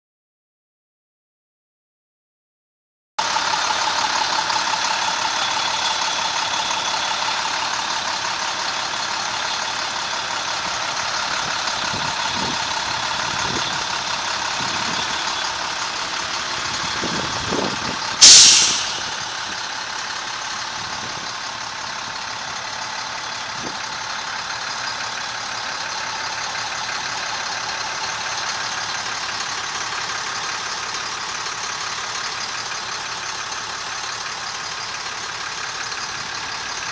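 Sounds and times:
truck diesel engine idling: 3.2 - 36.9
loud burst of hissing air: 18.2 - 19.6.

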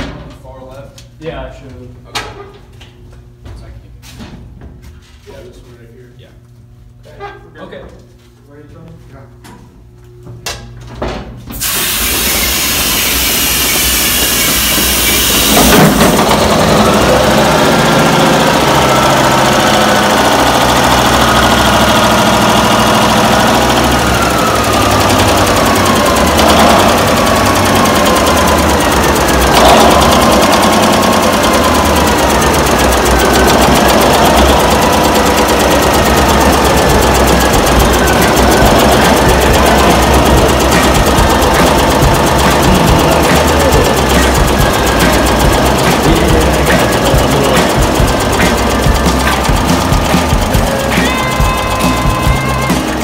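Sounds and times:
diesel generator cranking hiss: 11.5 - 53.0
diesel generator running: 11.5 - 53.0.

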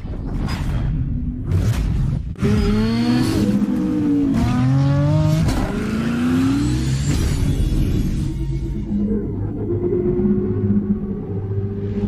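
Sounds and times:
engine revving: 2.4 - 8.6.

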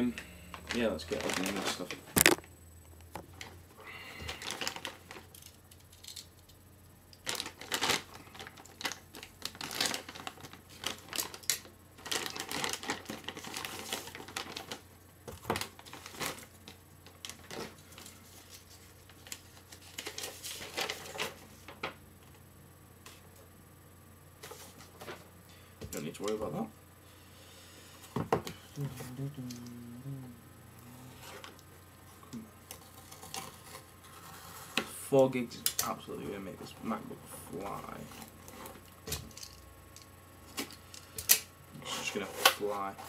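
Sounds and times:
packaging rustling and crinkling: 0.6 - 2.4, 4.3 - 6.2, 7.2 - 21.9.

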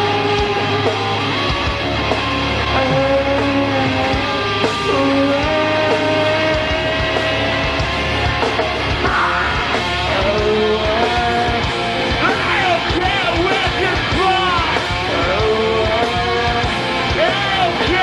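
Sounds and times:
live rock band playing: 0.0 - 18.0
person singing: 2.8 - 8.1, 9.0 - 18.0.

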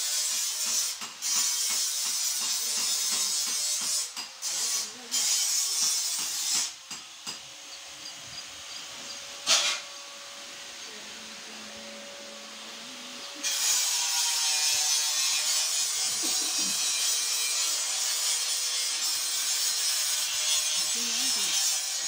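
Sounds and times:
motor hum: 7.4 - 13.7.

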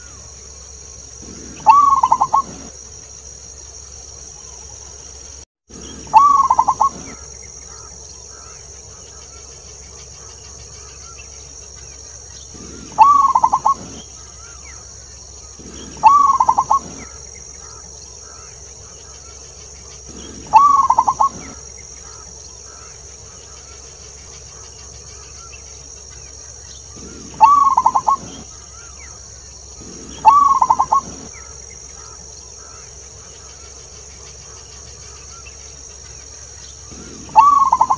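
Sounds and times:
steady high-pitched hiss: 0.0 - 37.9
dove cooing: 1.2 - 2.8, 5.8 - 8.6, 12.5 - 14.8, 15.4 - 18.5, 19.1 - 22.9, 26.9 - 29.2, 29.8 - 32.8, 36.8 - 37.9.

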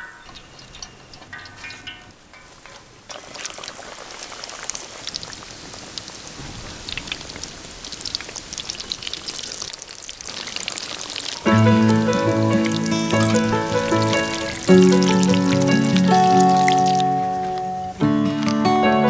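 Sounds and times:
fish deep-frying in oil: 0.0 - 18.7
background music: 11.5 - 19.0.

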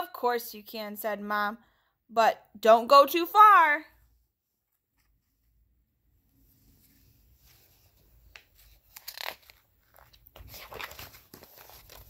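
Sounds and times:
paper page rustling: 7.4 - 12.0.

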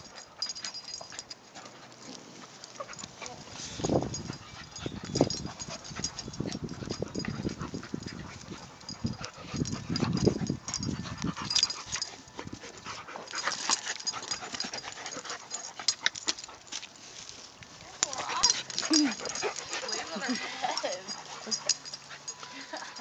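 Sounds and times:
puppies play growling: 18.2 - 22.3.

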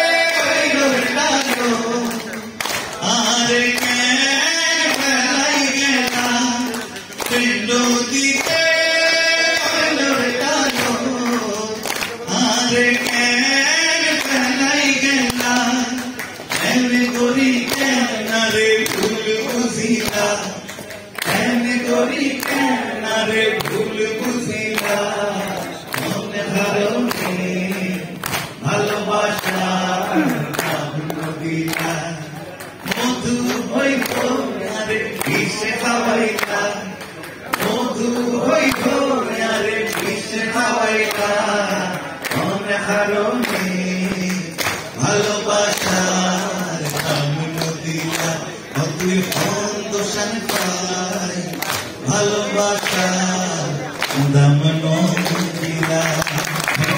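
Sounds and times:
man singing through pa speakers: 0.0 - 56.9.

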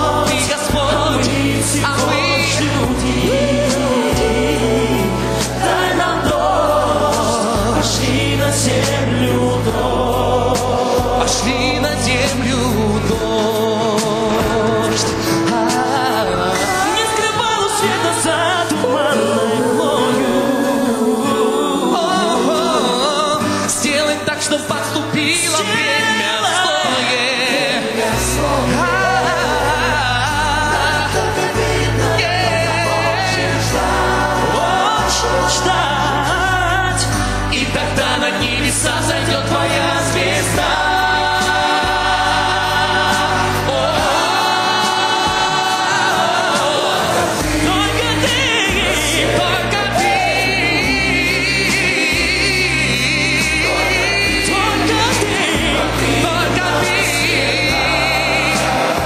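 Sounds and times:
low bass: 0.0 - 17.2
heavy bass: 0.0 - 19.2, 28.0 - 59.0
band backing music: 0.0 - 59.0
man singing: 0.0 - 59.0.

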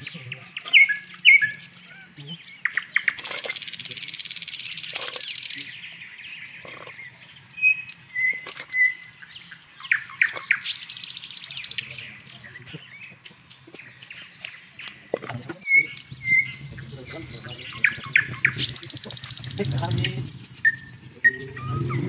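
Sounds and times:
songbirds chirping: 0.0 - 22.0.

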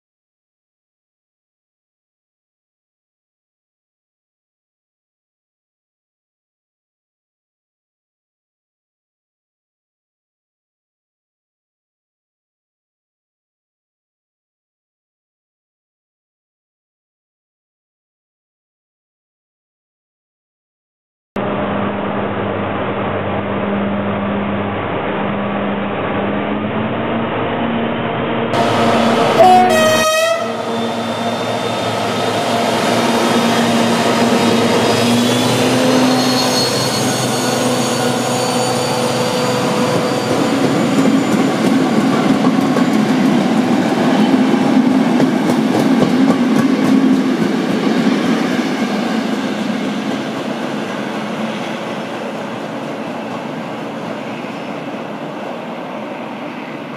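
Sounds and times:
diesel locomotive engine: 21.4 - 56.9
locomotive horn blast: 28.5 - 40.8
train wheels clattering on rails: 39.8 - 50.8.

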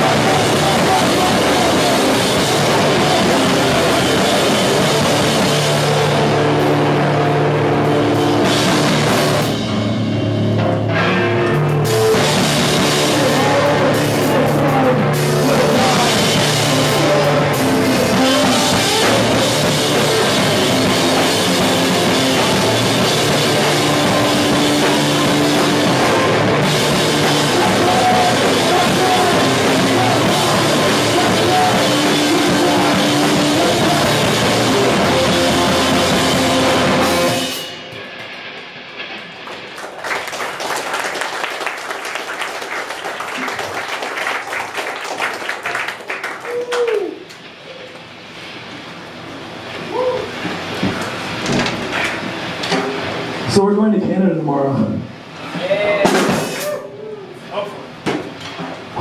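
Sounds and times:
live rock band playing: 0.0 - 42.0
drum kit pounding: 0.0 - 46.8, 49.8 - 56.8.

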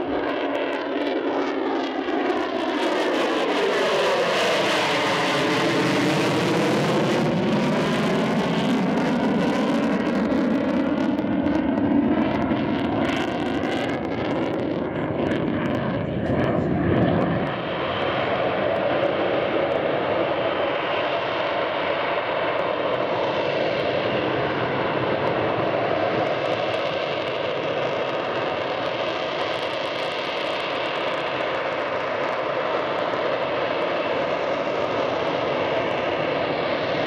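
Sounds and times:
jet engine roar: 0.0 - 37.0.

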